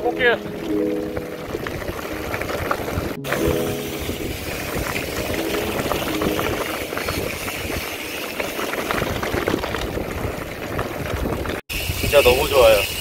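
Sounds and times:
bike tyres crunching gravel: 4.3s - 12.8s
bike rattling over bumps: 6.9s - 13.0s.

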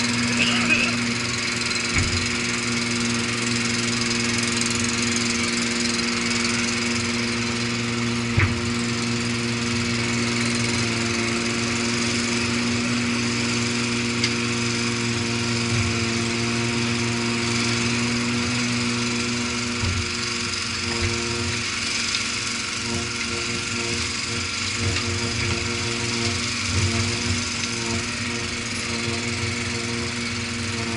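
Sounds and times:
excavator diesel engine running: 0.0s - 30.9s.

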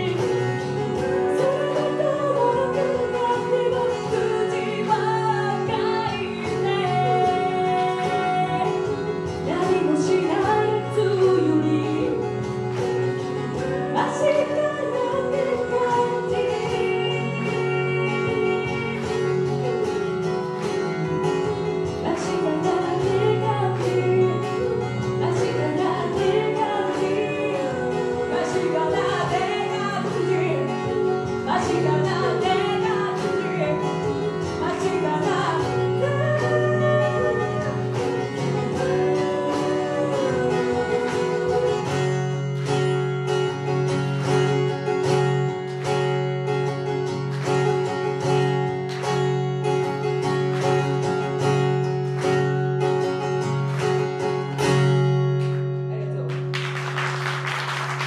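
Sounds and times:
woman singing: 0.0s - 20.6s, 21.5s - 42.8s
acoustic guitar: 0.0s - 58.0s.

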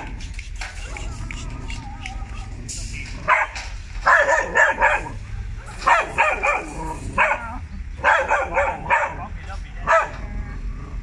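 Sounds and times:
dog barking: 3.2s - 5.2s, 5.8s - 10.2s.

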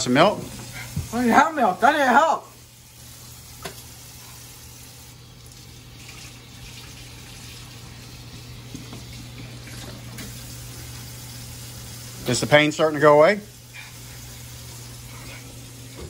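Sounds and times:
faucet running into metal sink: 2.6s - 16.0s.

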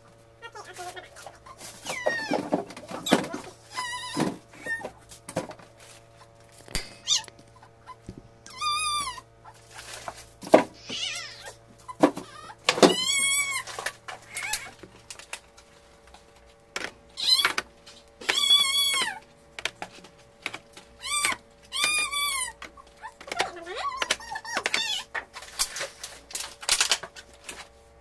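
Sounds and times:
low steady hum: 0.0s - 28.0s
animal calling: 6.9s - 10.0s, 10.8s - 14.8s, 18.2s - 19.2s.

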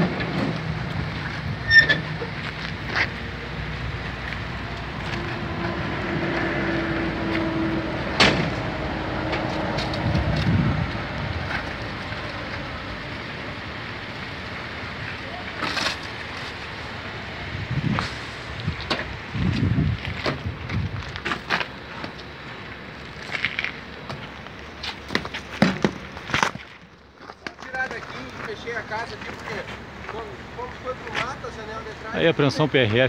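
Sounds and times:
vehicle engine running: 0.0s - 26.3s.

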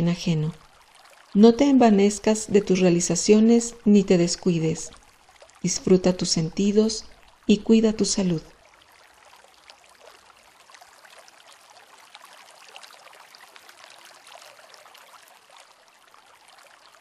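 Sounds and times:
water trickling: 0.0s - 17.0s.

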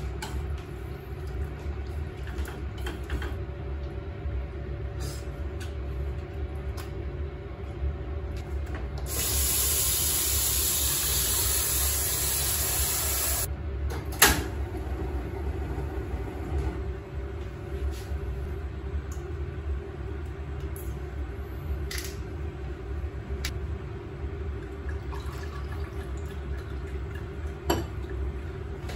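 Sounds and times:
small kitchen clicks: 2.2s - 3.4s
tap water running into a pot: 9.1s - 13.5s.

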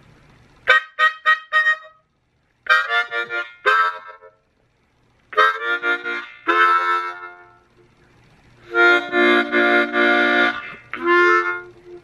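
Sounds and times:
blues harmonica playing: 0.6s - 4.4s, 5.3s - 7.7s, 8.6s - 12.0s.

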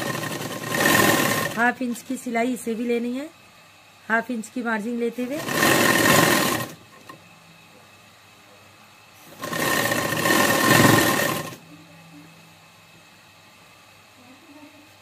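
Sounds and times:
sewing machine stitching: 0.0s - 1.6s, 5.3s - 6.8s, 9.3s - 11.6s.

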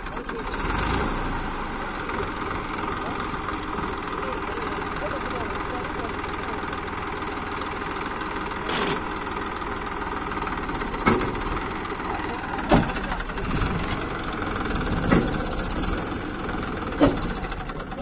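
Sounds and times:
diesel tractor engine running: 0.0s - 18.0s.

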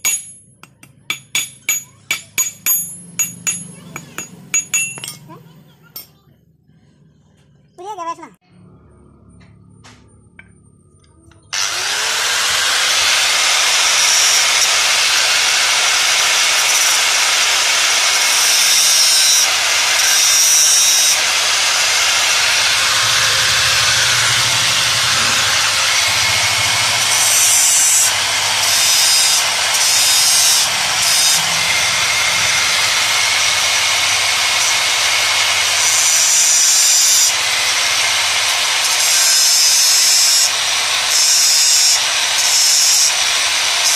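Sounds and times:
angle grinder grinding steel rod: 0.0s - 5.3s, 11.4s - 43.9s.

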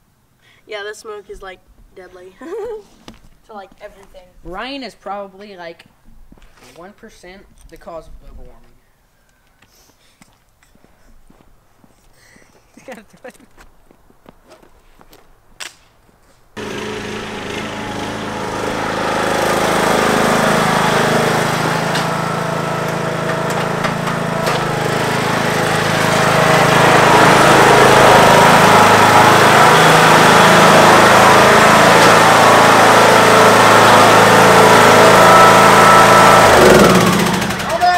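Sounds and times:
riding lawn mower engine: 16.6s - 37.9s.

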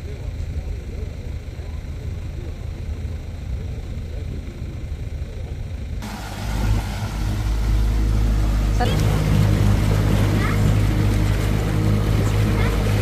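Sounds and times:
motorboat engine running: 0.0s - 13.0s
low rumble: 1.9s - 13.0s
water rushing past hull: 6.0s - 13.0s.

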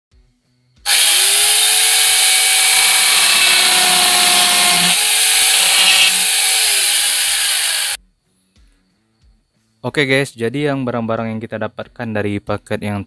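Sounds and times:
dense cutting noise: 0.9s - 8.0s
power tool motor whine: 0.9s - 8.0s.

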